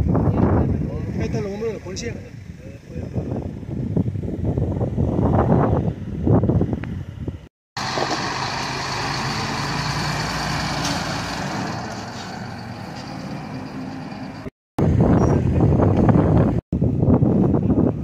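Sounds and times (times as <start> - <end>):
wind buffeting microphone: 0.0 - 8.4, 14.8 - 18.0
truck engine humming: 7.8 - 15.0.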